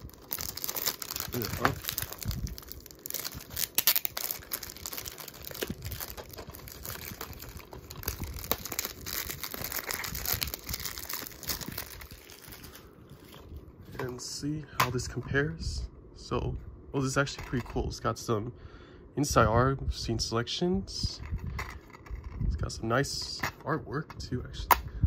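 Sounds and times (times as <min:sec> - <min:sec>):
shrink-wrap crinkling: 0:00.0 - 0:14.2.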